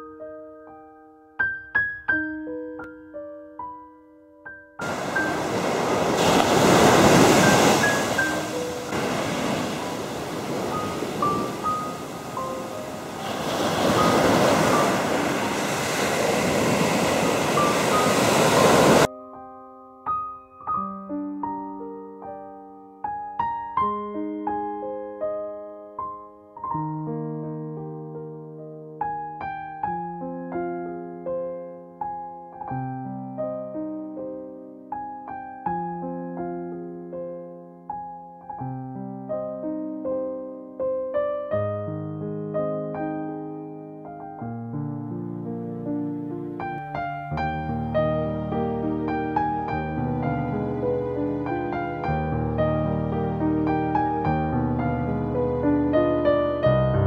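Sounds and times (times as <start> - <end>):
slow piano notes: 0.0 - 57.0
sea waves breaking on beach: 4.8 - 19.1.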